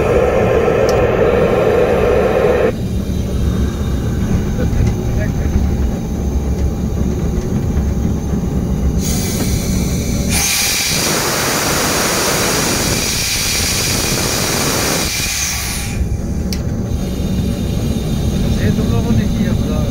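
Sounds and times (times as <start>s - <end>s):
loud steady hiss: 0.0s - 2.8s, 9.0s - 16.1s
diesel locomotive engine rumbling: 0.0s - 19.9s.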